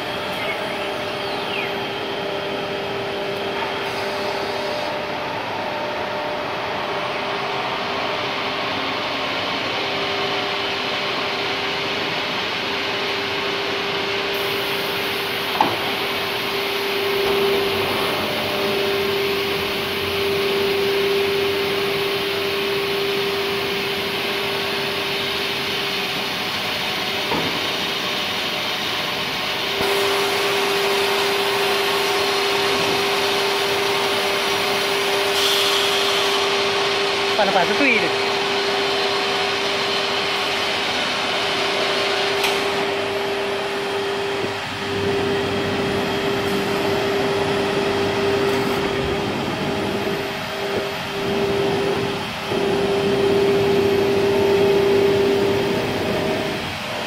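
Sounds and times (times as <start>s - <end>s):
wood router whine: 0.0s - 57.0s.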